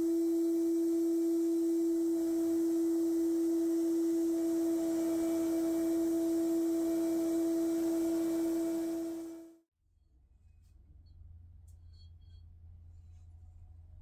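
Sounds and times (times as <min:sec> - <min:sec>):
faint hiss: 0:00.0 - 0:09.5
steady pure tone: 0:00.0 - 0:09.6.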